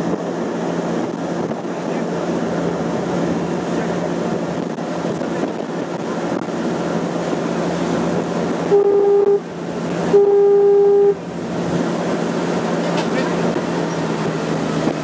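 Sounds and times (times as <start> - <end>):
ferry engine running: 0.0 - 15.0
rush of boat wake: 0.0 - 15.0
boat horn blasts: 8.6 - 11.3.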